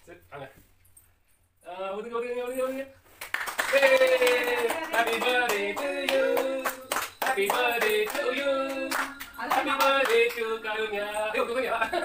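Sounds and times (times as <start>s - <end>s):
hands clapping in rhythm: 3.2s - 10.5s
people singing: 3.7s - 11.6s.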